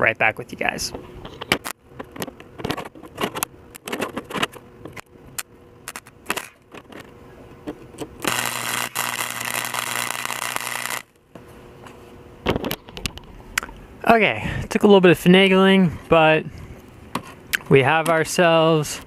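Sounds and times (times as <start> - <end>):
welder arc crackling: 5.4 - 6.8, 8.2 - 11.4.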